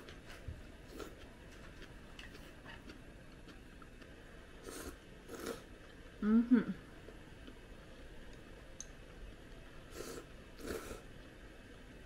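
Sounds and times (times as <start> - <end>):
slurping food: 4.6 - 5.7, 9.9 - 11.0.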